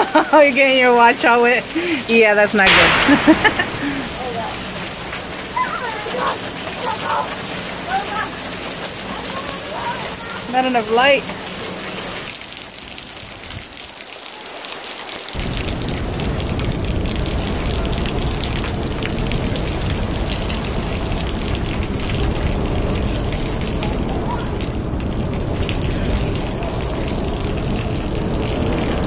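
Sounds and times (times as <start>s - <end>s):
heavy rain on pavement: 0.0s - 29.0s
steady low rumble: 2.6s - 6.1s, 15.4s - 29.0s.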